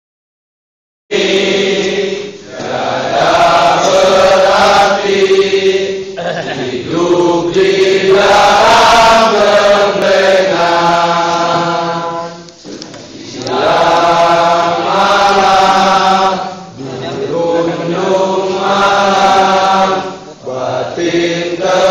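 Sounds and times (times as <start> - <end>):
group of students singing in unison: 1.1 - 21.9.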